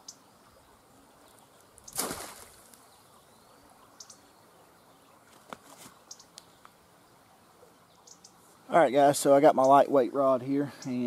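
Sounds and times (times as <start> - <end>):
trap splashing into water: 1.9 - 2.8
faint ticks: 5.3 - 6.8.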